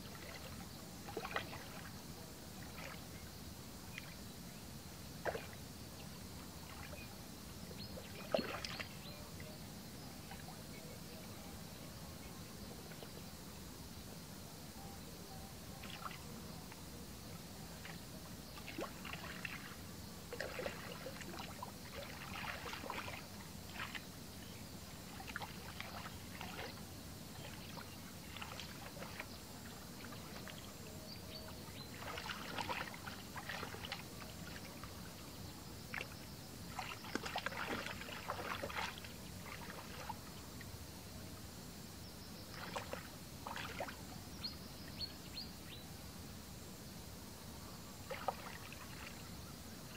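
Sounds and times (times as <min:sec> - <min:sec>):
hands splashing in muddy water: 0:20.3 - 0:24.0, 0:31.9 - 0:34.6, 0:35.9 - 0:40.2.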